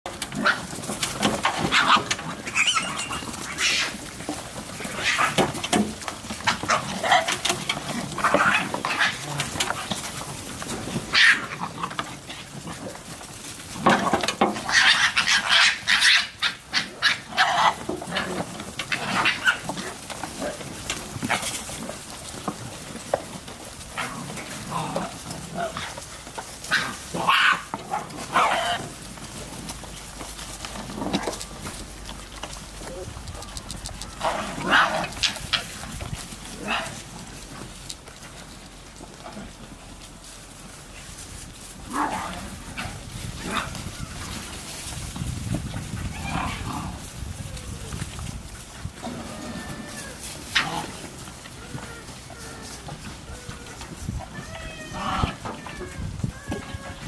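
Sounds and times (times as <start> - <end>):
foxes crying and screaming: 1.5 - 4.1, 14.5 - 20.5, 26.6 - 29.0, 46.0 - 48.0, 49.0 - 57.0.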